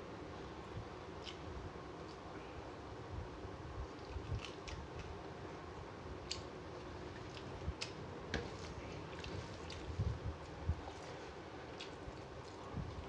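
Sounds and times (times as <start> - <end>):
wet mouth clicks and chewing: 4.3 - 5.2.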